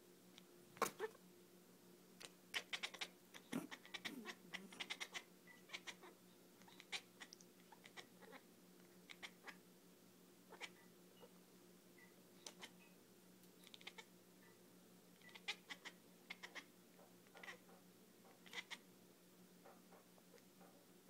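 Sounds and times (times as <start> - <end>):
faint steady hum: 0.0 - 21.0
cat clicking chatter: 2.2 - 6.0
cat squeaky chirps: 2.6 - 6.1.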